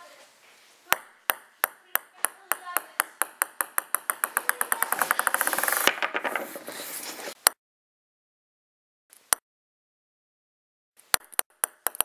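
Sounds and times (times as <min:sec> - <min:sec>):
ping pong ball bouncing on table: 0:00.9 - 0:05.8, 0:11.2 - 0:12.0.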